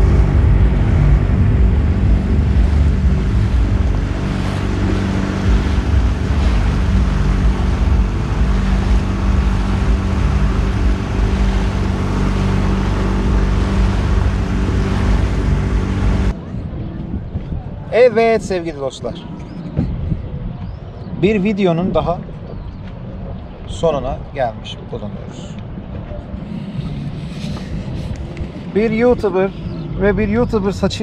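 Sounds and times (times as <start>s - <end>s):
water rushing: 0.0s - 16.4s
motorboat engine running: 0.0s - 17.6s, 25.6s - 31.0s
wind buffeting microphone: 0.0s - 31.0s.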